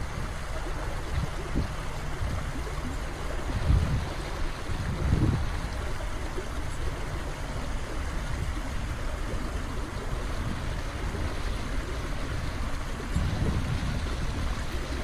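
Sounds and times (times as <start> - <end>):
low water rumble: 0.0 - 15.0
waterfall rushing and splashing: 0.0 - 15.0.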